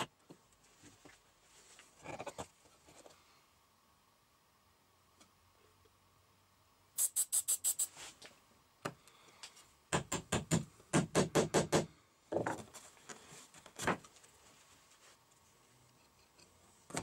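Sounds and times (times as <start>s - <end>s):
fast knocks on wood: 9.9s - 12.6s.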